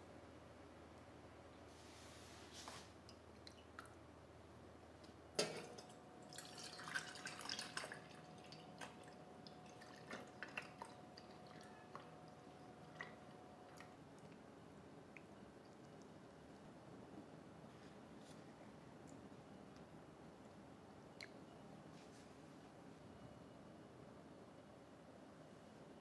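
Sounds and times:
faint steady hum: 0:00.0 - 0:26.0
water dripping: 0:03.0 - 0:04.0, 0:05.0 - 0:14.4.

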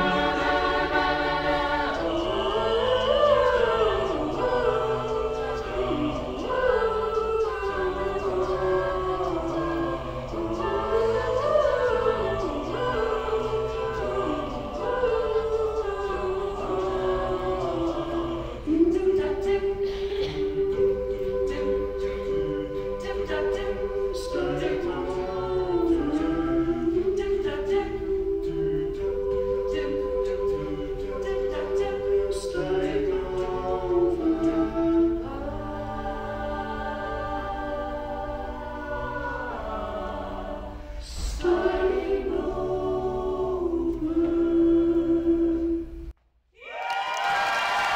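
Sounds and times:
a cappella group singing: 0:00.0 - 0:46.1.

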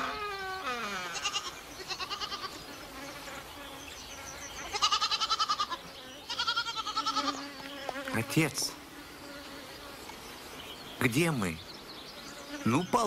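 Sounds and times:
goat bleating: 0:00.0 - 0:02.6, 0:04.6 - 0:07.4.

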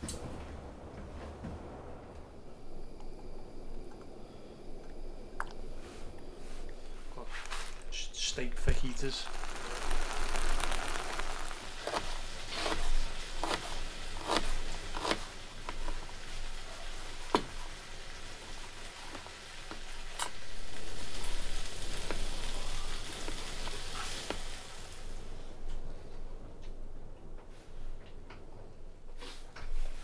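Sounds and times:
meat sizzling in a pan: 0:08.7 - 0:25.2.

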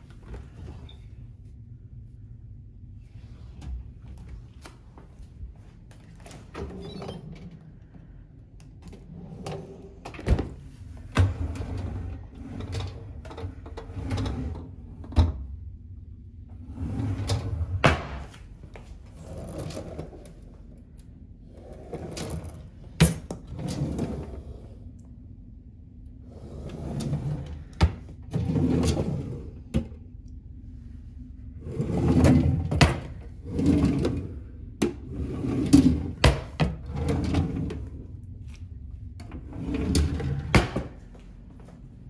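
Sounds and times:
low sliding rumbles: 0:00.1 - 0:15.1.

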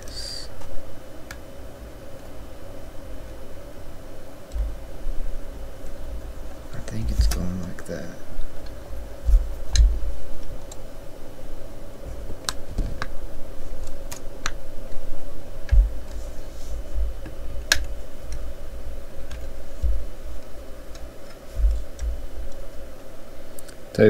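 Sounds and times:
soft rubbing and bumps on mat: 0:08.4 - 0:10.6, 0:15.7 - 0:18.6, 0:19.4 - 0:20.6, 0:21.4 - 0:22.5.

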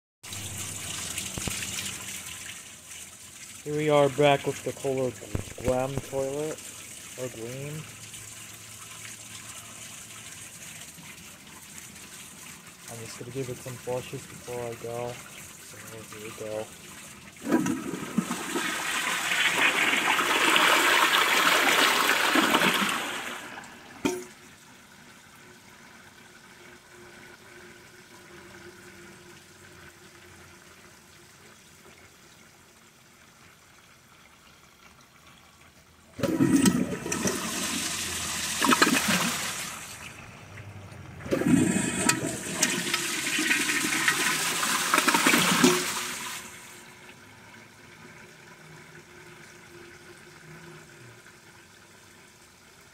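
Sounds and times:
toilet tank refilling hiss: 0:00.2 - 0:24.2, 0:36.0 - 0:40.1, 0:41.2 - 0:47.3
toilet flushing: 0:00.2 - 0:33.0, 0:35.3 - 0:52.9.

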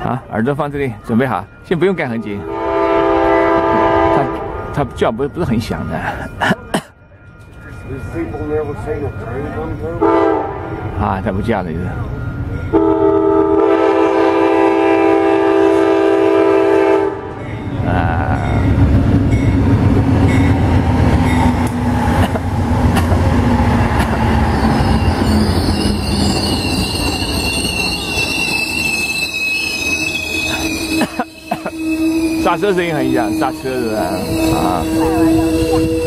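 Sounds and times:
locomotive horn blast: 0:02.2 - 0:04.8, 0:10.0 - 0:11.0, 0:12.7 - 0:17.4, 0:30.3 - 0:36.0
train rumbling past: 0:07.2 - 0:36.0
train brakes squealing: 0:24.0 - 0:36.0.

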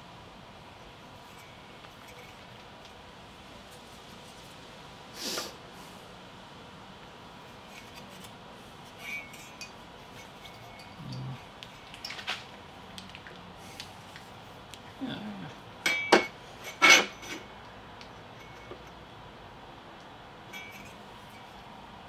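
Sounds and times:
sharp ringing metal clinks: 0:10.4 - 0:11.4, 0:15.8 - 0:17.4, 0:20.5 - 0:21.5.

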